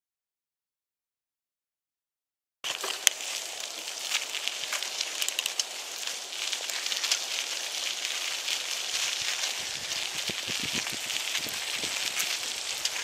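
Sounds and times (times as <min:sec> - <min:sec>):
bike tyres crunching on dirt trail: 0:02.6 - 0:13.0
sharp clicks and ticks: 0:03.8 - 0:05.7.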